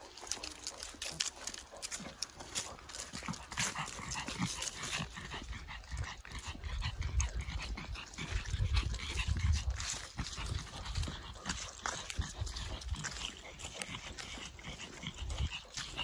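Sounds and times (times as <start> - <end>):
dog breathing heavily: 0.0 - 16.0
footsteps crunching dry leaves: 8.9 - 16.0.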